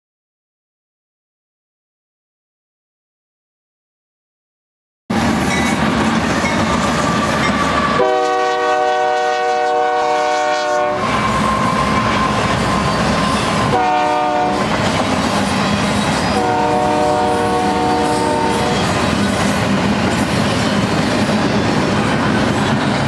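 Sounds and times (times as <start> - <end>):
locomotive engines rumbling: 5.1 - 23.0
train wheels rumbling: 5.1 - 23.0
locomotive air horn blasts: 7.7 - 12.9, 13.5 - 14.7, 16.3 - 18.9.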